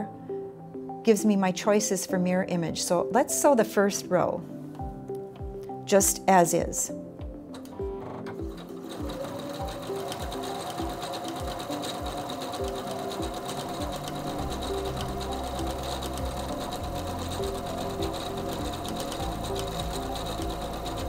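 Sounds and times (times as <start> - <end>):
background music: 0.0 - 21.0
sewing machine sewing: 8.0 - 21.0.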